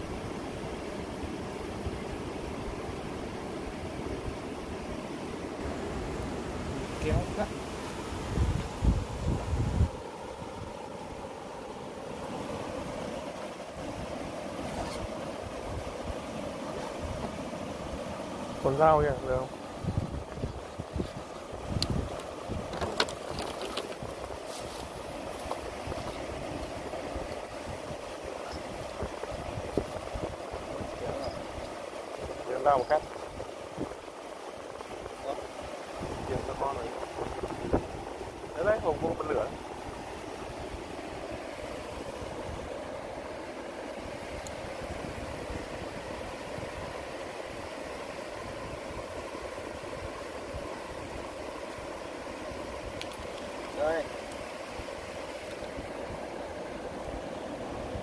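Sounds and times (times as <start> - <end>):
stream rushing over rocks: 0.0 - 58.0
wind buffeting microphone: 5.6 - 10.9, 13.8 - 51.6.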